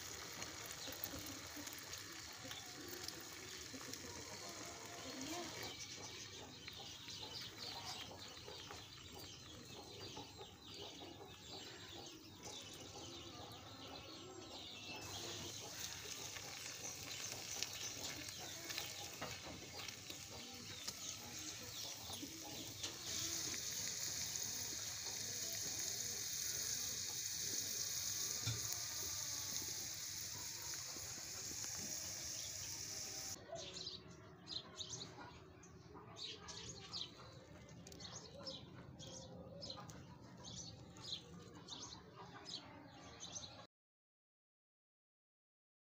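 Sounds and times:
potatoes deep-frying in oil: 0.0s - 11.8s, 14.7s - 33.4s.

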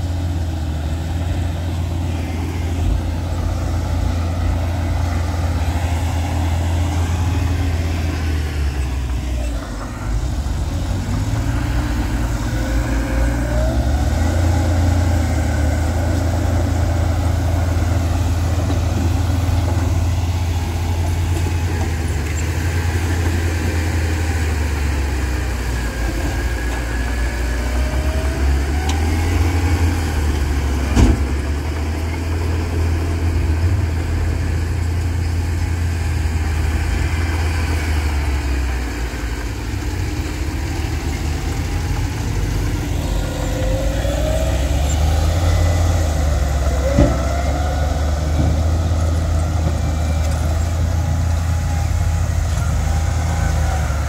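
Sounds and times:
diesel truck engines idling: 0.0s - 54.0s.

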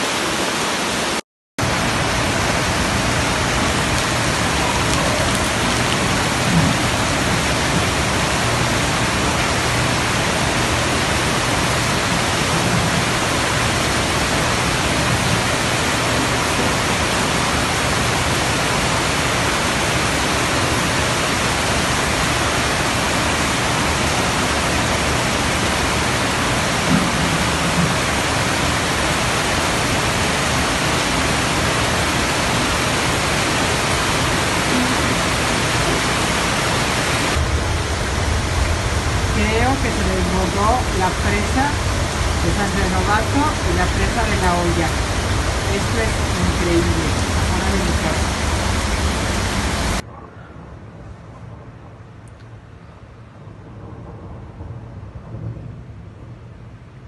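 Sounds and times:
floodwater rushing through street: 0.0s - 50.0s
rain: 0.0s - 50.1s, 51.0s - 57.0s.

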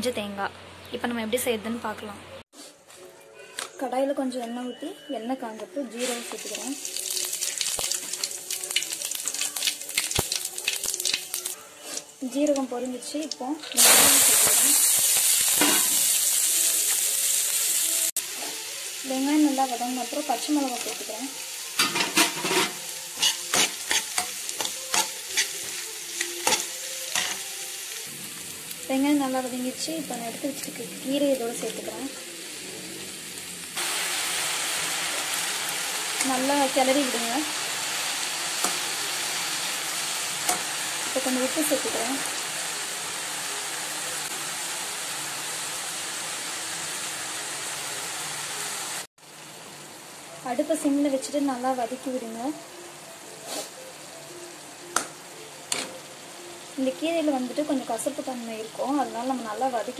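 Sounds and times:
hot oil sizzling: 5.8s - 59.9s
metal spatula scraping a pan: 21.8s - 25.8s.

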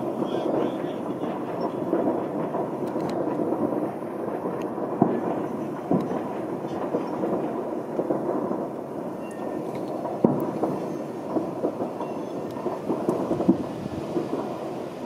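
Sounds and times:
distant fireworks rumble: 0.0s - 15.0s
faint firework crackles: 0.0s - 15.0s
sharp loud firework bangs: 0.0s - 15.0s.

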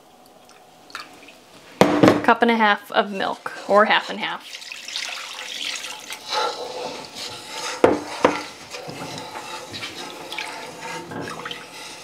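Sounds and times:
kitchenware knocks: 1.8s - 2.3s, 7.8s - 8.4s
wooden spatula stirring: 2.6s - 12.0s
milk pouring into pan: 4.4s - 12.0s.

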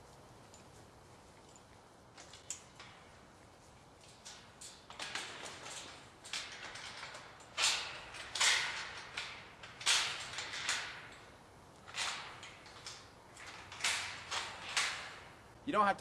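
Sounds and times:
metal mesh panels rattling and scraping: 4.0s - 15.5s.

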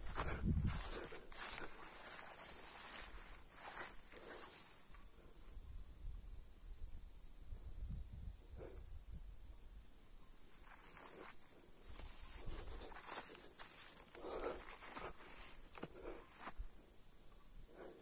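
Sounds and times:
footsteps in grass: 0.0s - 5.0s, 10.7s - 16.6s
crickets chirping: 0.0s - 18.0s.

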